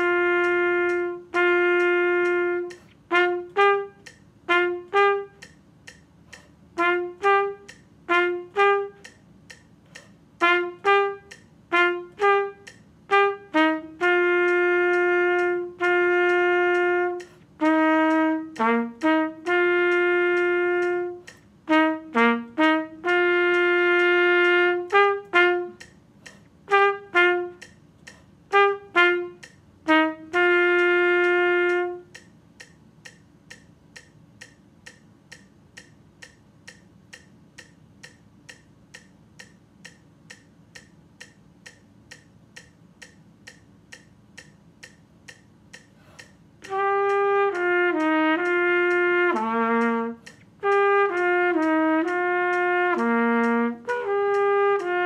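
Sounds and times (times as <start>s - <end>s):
solo trumpet: 0.0s - 5.6s, 6.3s - 9.2s, 10.4s - 27.8s, 28.5s - 32.3s, 46.6s - 55.0s
metronome ticking: 0.0s - 55.0s.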